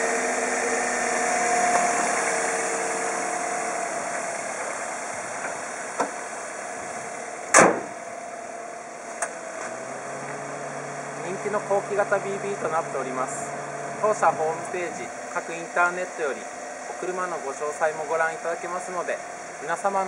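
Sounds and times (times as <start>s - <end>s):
car engine idling: 0.0s - 20.0s
car bonnet slamming shut: 5.4s - 6.2s, 7.5s - 8.0s.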